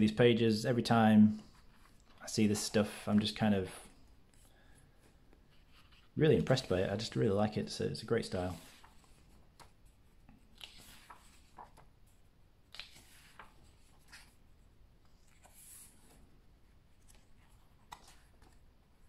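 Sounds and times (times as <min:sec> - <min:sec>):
pages being turned: 0:08.2 - 0:19.0.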